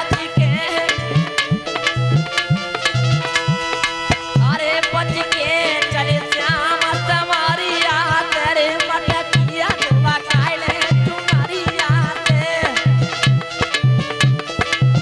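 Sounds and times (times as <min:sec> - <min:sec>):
man singing into microphone: 0:00.0 - 0:01.4, 0:04.4 - 0:13.2
hand drum beat: 0:00.0 - 0:15.0
harmonium chord: 0:00.0 - 0:15.0.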